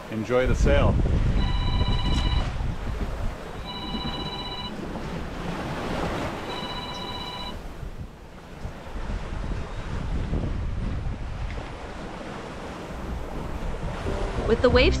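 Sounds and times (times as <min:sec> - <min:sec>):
sea noise: 0:00.0 - 0:15.0
wind: 0:00.0 - 0:15.0
phone ringtone: 0:01.4 - 0:02.5, 0:03.6 - 0:04.8, 0:06.4 - 0:07.6.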